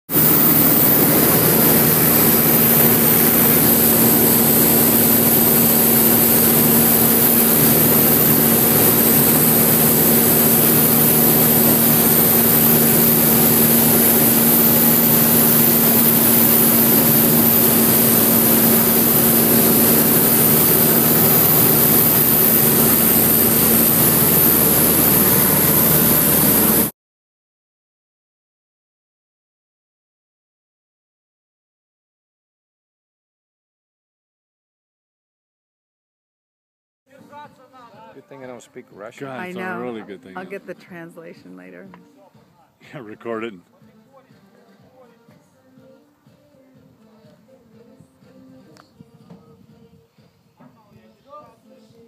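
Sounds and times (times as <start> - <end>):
propeller plane engine drone: 0.1 - 26.9.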